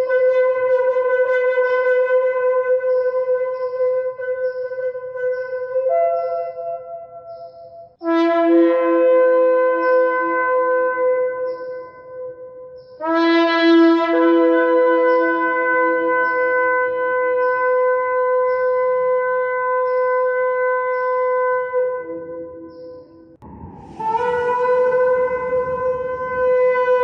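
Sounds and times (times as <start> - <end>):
shofar blasts: 0.0 - 12.0, 13.0 - 27.0.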